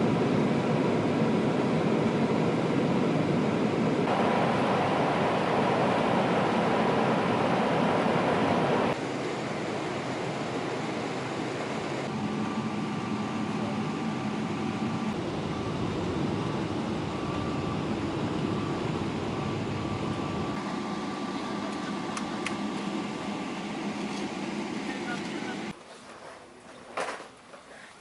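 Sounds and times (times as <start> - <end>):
mechanical rumble and hiss: 4.1 - 10.2.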